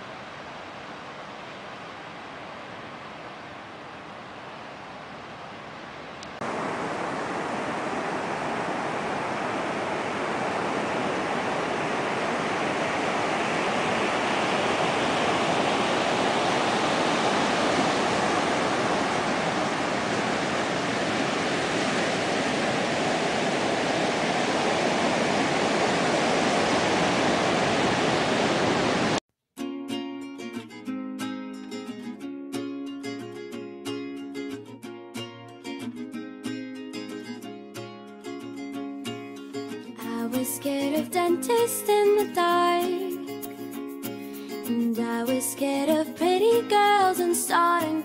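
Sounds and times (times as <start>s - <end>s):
ocean surf breaking on beach: 0.0s - 29.2s.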